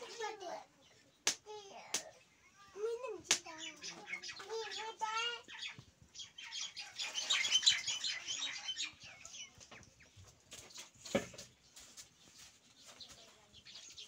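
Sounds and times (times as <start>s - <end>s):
child's voice: 0.0s - 5.6s.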